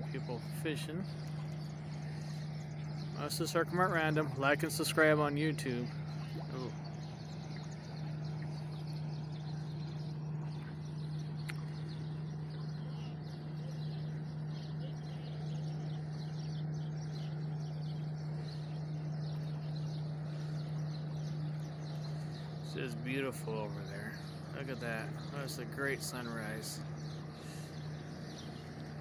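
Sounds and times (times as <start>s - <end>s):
birds chirping: 0.0s - 29.0s
boat engines droning: 0.0s - 29.0s.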